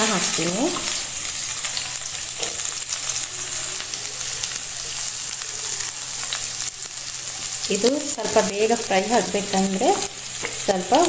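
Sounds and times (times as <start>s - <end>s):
oil sizzling in a pan: 0.0s - 11.0s
small crackles: 0.2s - 11.0s.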